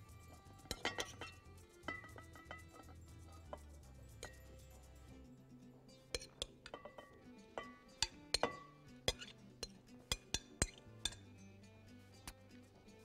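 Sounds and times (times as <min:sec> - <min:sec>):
soft background music: 0:00.0 - 0:13.0
spoon clinking against glass bowl: 0:00.3 - 0:05.1, 0:06.0 - 0:11.4.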